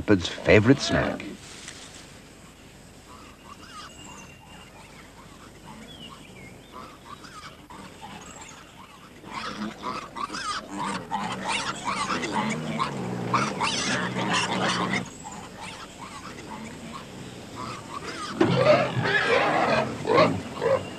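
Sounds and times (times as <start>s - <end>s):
piglets squealing: 3.2s - 5.6s, 6.8s - 20.9s.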